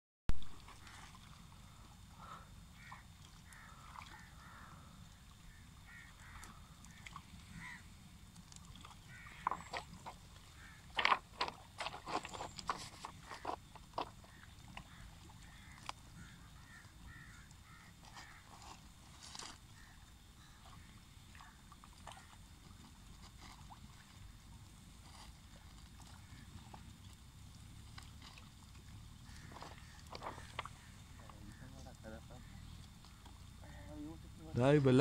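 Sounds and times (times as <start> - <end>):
clatters on stones: 10.9 - 14.2, 29.5 - 30.7
fish splashing in water: 19.6 - 31.8.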